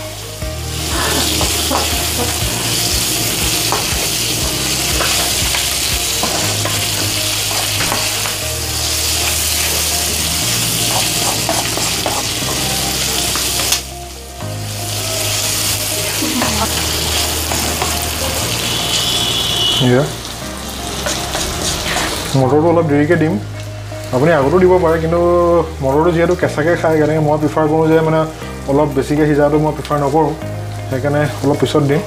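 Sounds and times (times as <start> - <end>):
meat sizzling in hot oil: 0.0 - 32.0
spatula scraping and tapping pan: 21.0 - 22.3.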